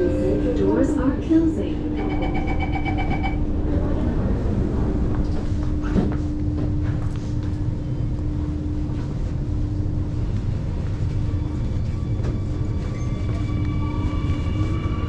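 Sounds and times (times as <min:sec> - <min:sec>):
constant hum: 0:00.0 - 0:15.0
train running rumble: 0:00.0 - 0:15.0.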